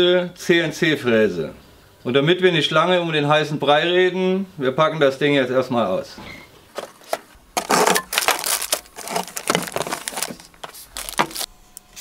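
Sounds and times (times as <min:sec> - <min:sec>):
plastic packaging rustling: 0:06.7 - 0:11.5.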